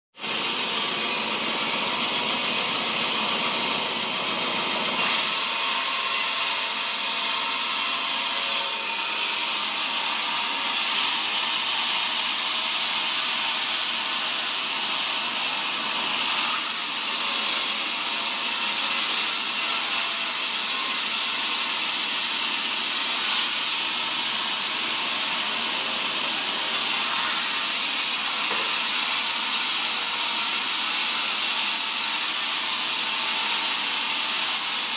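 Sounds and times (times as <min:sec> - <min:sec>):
band saw cutting log: 0:00.2 - 0:34.9.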